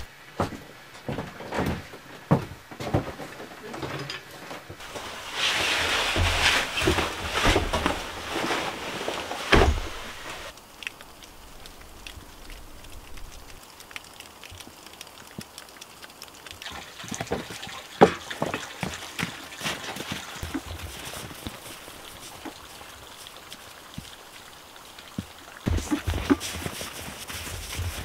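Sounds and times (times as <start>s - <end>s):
footsteps on wooden steps: 0.3s - 10.5s, 17.2s - 22.6s, 25.2s - 28.0s
backpack rustling: 4.8s - 10.5s, 25.7s - 28.0s
thud: 9.4s - 10.3s
faint drips: 10.5s - 28.0s.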